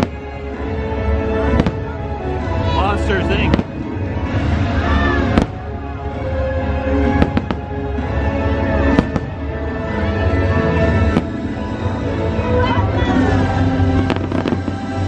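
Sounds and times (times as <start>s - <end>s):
fireworks bursting bangs: 0.0s - 0.4s, 1.4s - 9.7s, 10.8s - 11.9s, 13.8s - 15.0s
show music: 0.0s - 15.0s.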